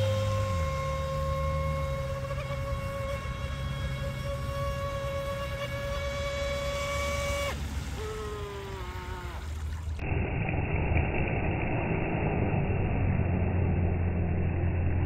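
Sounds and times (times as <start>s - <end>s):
electric motor whining: 0.0s - 9.2s
boat rushing through water: 0.0s - 15.0s.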